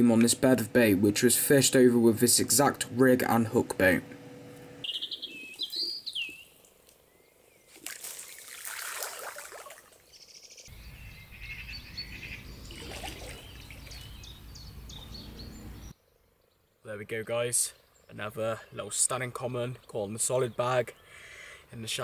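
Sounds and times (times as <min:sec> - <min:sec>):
small birds chirping: 0:04.8 - 0:08.6, 0:09.9 - 0:22.0
water splashing: 0:07.7 - 0:10.1, 0:12.6 - 0:14.3.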